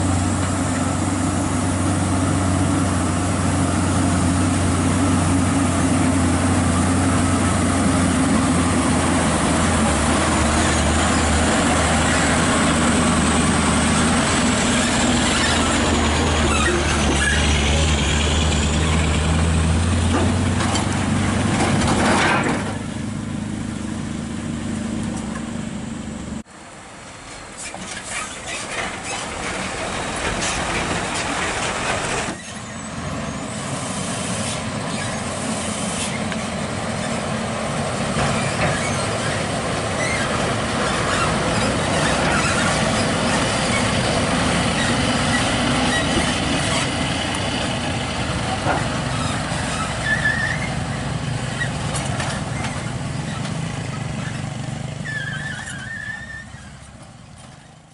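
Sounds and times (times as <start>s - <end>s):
diesel truck engine under load: 0.0s - 57.9s
quieter truck engine: 0.0s - 57.9s
faint high squeals: 49.1s - 53.5s, 55.0s - 56.9s.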